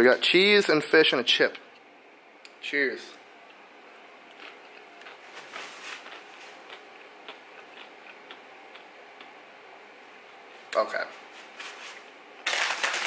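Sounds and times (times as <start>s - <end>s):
chewing crunches: 3.4s - 9.4s.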